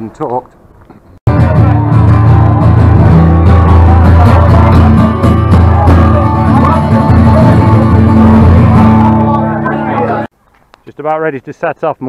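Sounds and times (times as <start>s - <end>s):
heavy bass: 1.3s - 10.3s
live band music with guitar: 1.3s - 10.3s.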